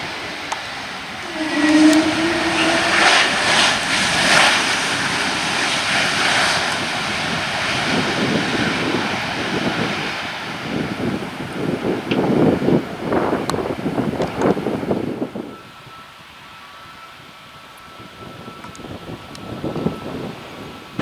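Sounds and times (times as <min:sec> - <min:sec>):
jet engines spooling up: 0:00.0 - 0:12.1.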